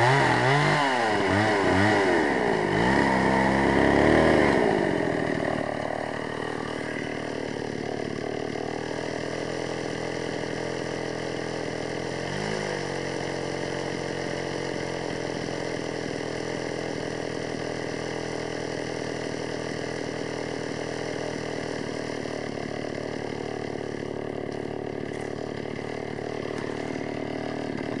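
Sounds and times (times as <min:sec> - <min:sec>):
chainsaw idling: 0:00.0 - 0:28.0.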